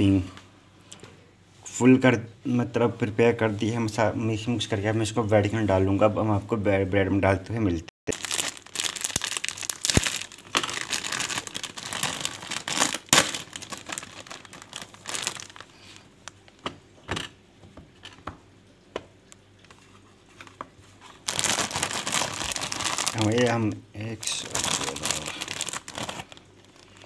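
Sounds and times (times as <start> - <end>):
plastic bread bag crinkling: 8.1 - 16.5, 20.3 - 27.0.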